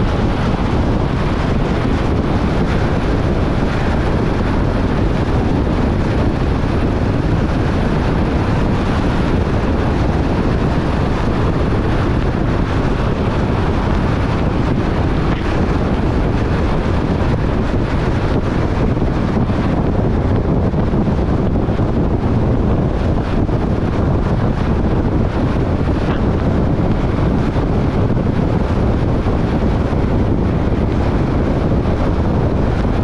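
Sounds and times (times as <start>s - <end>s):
car driving on wet road: 0.0s - 33.0s.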